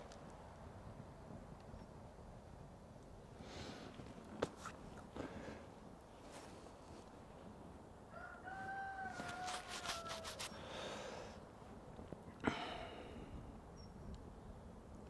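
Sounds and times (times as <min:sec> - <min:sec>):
rooster crowing faintly: 0:08.0 - 0:10.6.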